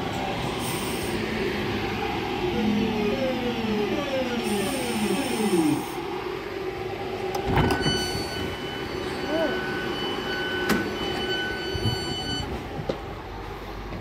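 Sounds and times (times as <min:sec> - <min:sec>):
steady high tone: 0:07.7 - 0:12.5
train doors opening knock: 0:10.6 - 0:13.0.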